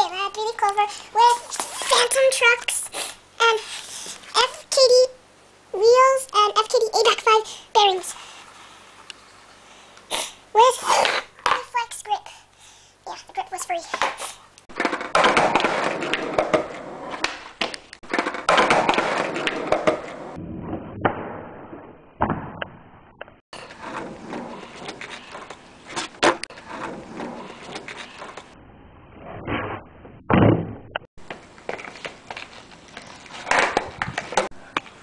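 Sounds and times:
skateboard wheels rolling on concrete: 13.1 - 20.4, 23.6 - 28.6, 31.2 - 35.0.

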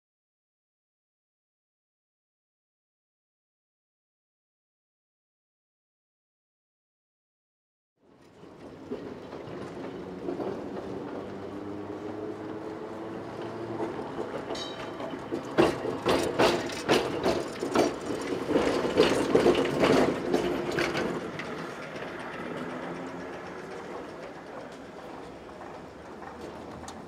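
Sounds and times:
tram motor hum: 8.1 - 27.0
wheels clacking over rail joints: 8.1 - 27.0.

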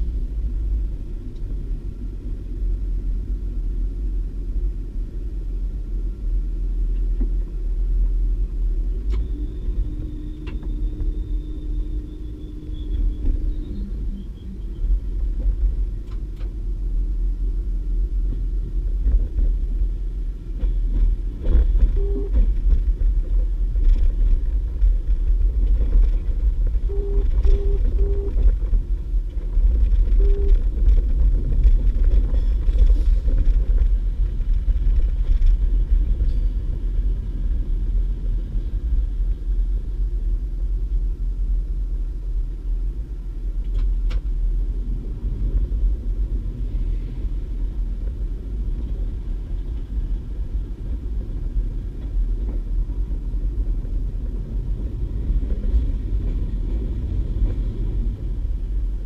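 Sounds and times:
train diesel engine rumble: 0.0 - 59.0
train wheels on track: 0.0 - 59.0
short tones: 26.9 - 28.4, 30.2 - 30.6.

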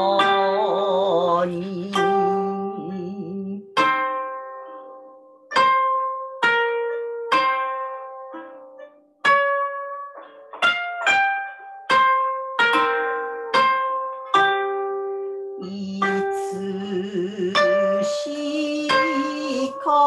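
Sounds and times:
wavering low tone: 0.0 - 3.9, 15.6 - 20.0
koto plucked notes: 0.0 - 20.0.

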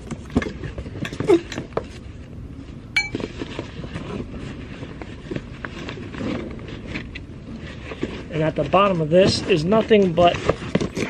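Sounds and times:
short ringing clink: 3.0 - 3.2.

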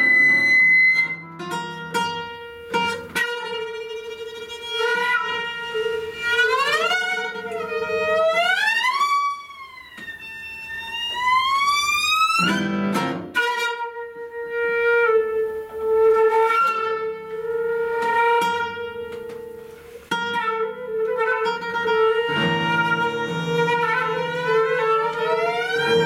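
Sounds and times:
noisy guitar chord: 0.0 - 2.9
flute viola and guitar trio: 0.0 - 26.0.

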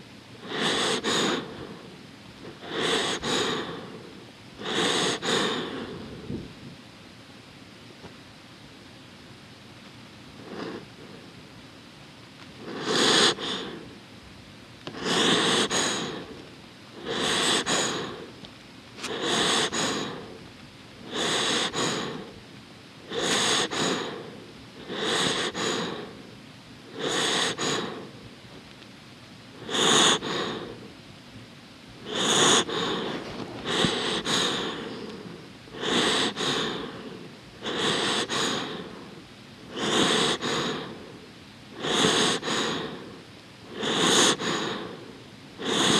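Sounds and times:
dog breathing noisily: 0.4 - 6.6, 10.4 - 11.3, 12.6 - 14.0, 14.9 - 18.4, 19.0 - 22.4, 23.0 - 28.2, 29.6 - 31.0, 32.0 - 45.9.

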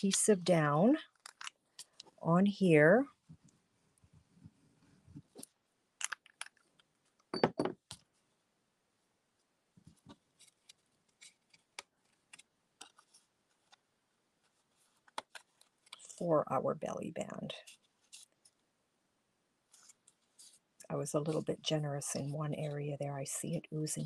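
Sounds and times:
paper rustling: 9.8 - 13.8, 17.6 - 18.6, 19.7 - 20.6.

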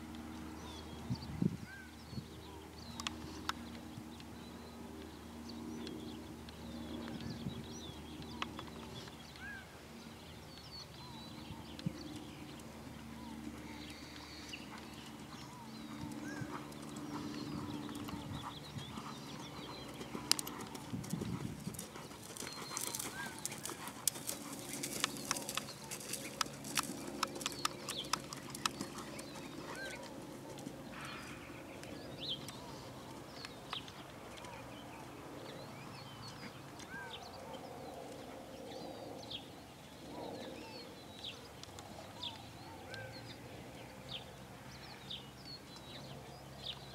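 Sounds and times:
small birds chirping: 0.0 - 46.9
horse hoofbeats on dirt: 12.0 - 31.2.

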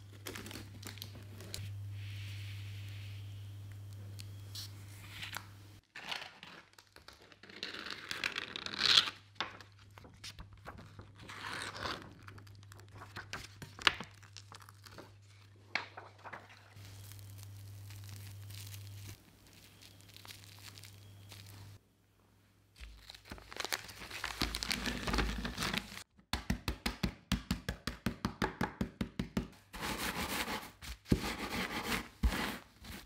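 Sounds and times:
plastic film crinkling and rustling: 0.0 - 1.6, 8.9 - 21.8, 22.8 - 26.1.

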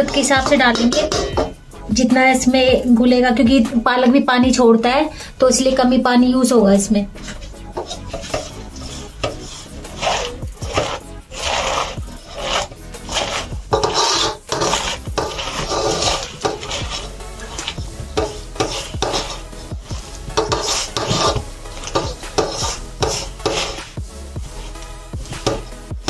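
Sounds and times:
hand mixing food in metal bowl: 0.0 - 1.7, 7.1 - 26.0.

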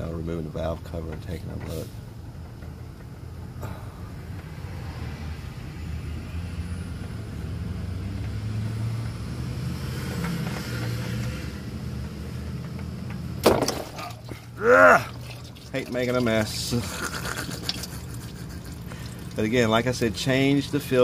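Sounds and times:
oil running out: 13.4 - 20.7
person exclaiming: 14.5 - 15.3.

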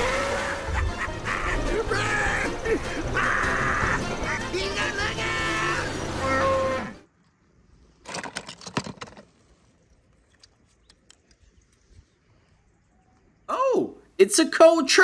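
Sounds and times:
small hard objects clattering: 8.0 - 9.6.

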